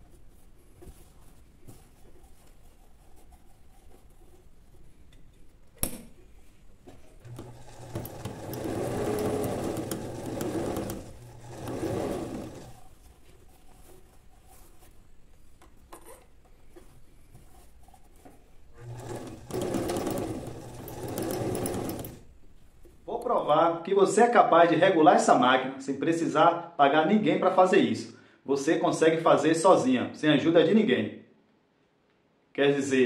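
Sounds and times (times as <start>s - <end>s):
sewing machine stitching: 7.2s - 12.9s, 18.8s - 22.3s.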